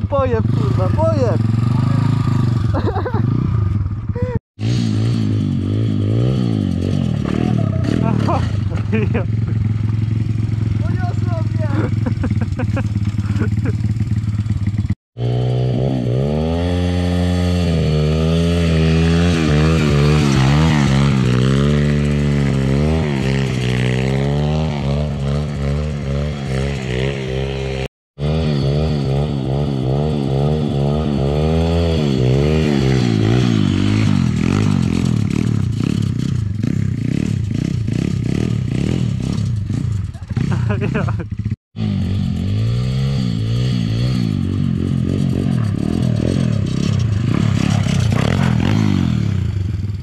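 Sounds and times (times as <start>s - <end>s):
small motorbike engine revving: 0.1s - 50.0s.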